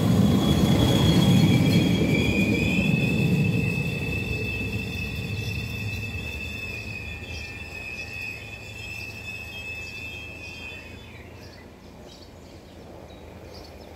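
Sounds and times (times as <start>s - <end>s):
train running whine and rumble: 0.0s - 13.9s
bird chirps: 4.6s - 13.9s.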